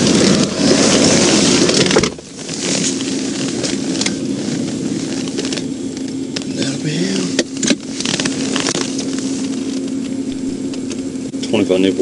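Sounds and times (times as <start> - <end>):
passing traffic: 0.0 - 11.6
steady hum: 0.0 - 12.0.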